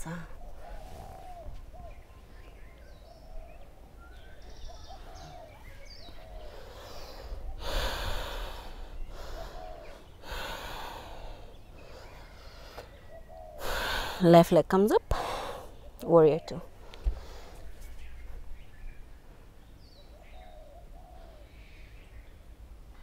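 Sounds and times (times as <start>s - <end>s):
woman breathing heavily: 6.3s - 14.3s, 15.1s - 15.8s, 16.7s - 17.7s.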